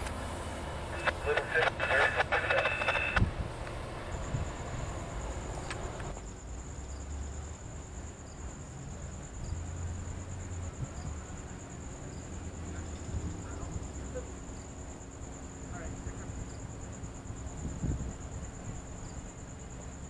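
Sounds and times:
low distant rumble: 0:00.0 - 0:06.2
cricket trilling: 0:00.0 - 0:20.0.

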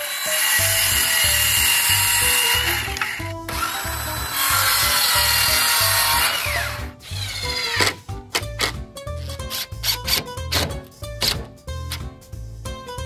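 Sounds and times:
saw blade winding down: 0:00.0 - 0:08.0
circular saw cutting wood: 0:00.0 - 0:08.7.

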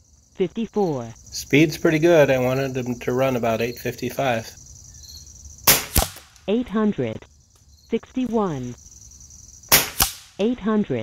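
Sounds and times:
air rifle shots cracking: 0:05.7 - 0:06.4, 0:09.7 - 0:10.4.

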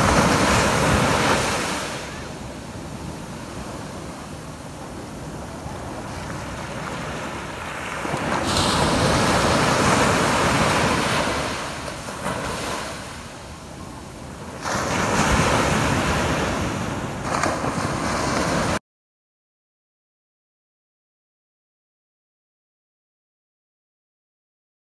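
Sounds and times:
waves breaking on sandy beach: 0:00.0 - 0:18.8.

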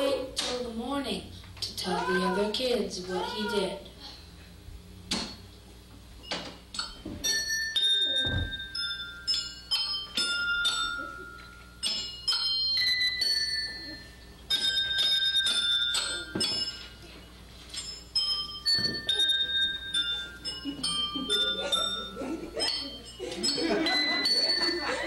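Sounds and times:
metal chimes ringing: 0:06.2 - 0:25.0.

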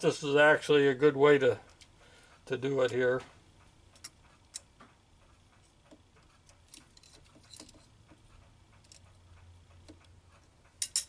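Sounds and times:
calipers clicking on metal: 0:05.6 - 0:11.0.

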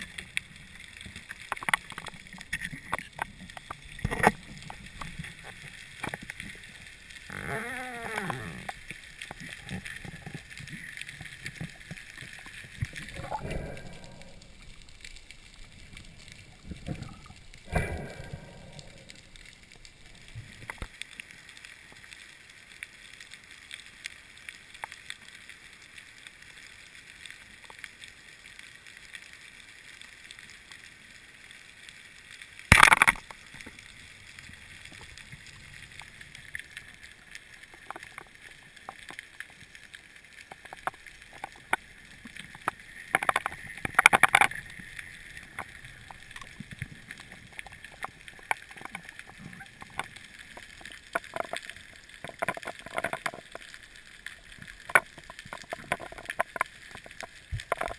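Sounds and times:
small clicks and crackles: 0:00.0 - 0:57.9
underwater hiss: 0:03.9 - 0:20.8.

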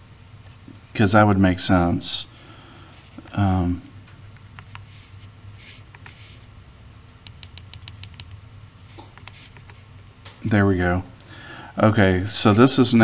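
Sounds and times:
calculator keys clicking: 0:07.3 - 0:08.4.

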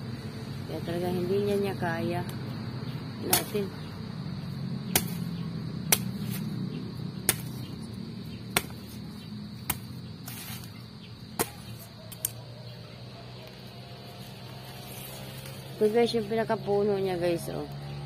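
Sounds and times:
knife chopping banana stalk: 0:08.5 - 0:09.0.

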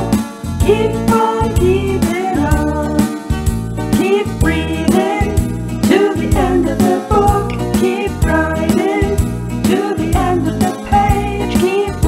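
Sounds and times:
children's song with sung vocals: 0:00.6 - 0:03.1, 0:04.0 - 0:12.0.

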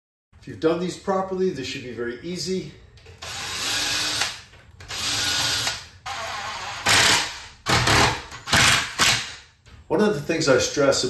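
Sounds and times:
impact driver driving screws: 0:03.2 - 0:09.4.

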